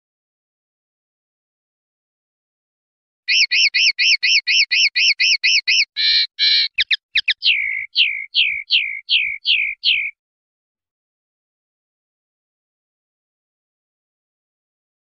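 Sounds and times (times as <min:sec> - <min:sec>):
songbird singing: 0:03.3 - 0:10.2.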